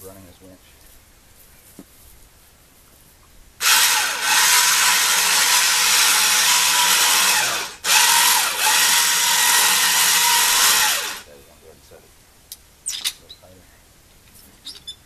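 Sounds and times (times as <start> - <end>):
winch motor hauling rope: 3.6 - 11.3.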